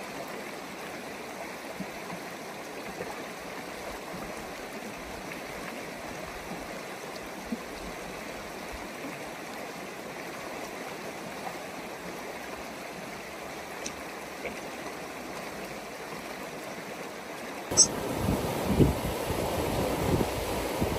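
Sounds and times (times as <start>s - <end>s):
river rushing over rocks: 15.6s - 20.9s.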